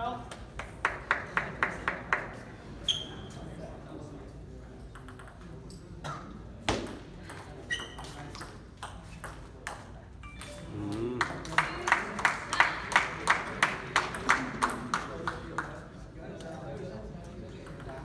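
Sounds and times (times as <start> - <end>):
spectators clapping: 0.5 - 2.3, 10.9 - 15.7
ping pong ball clicking: 4.9 - 5.4, 17.6 - 18.0.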